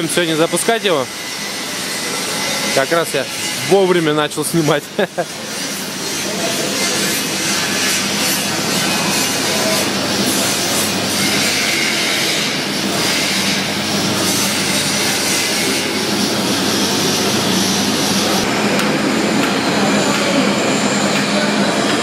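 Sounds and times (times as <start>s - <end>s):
loud machine rushing noise: 4.9s - 22.0s.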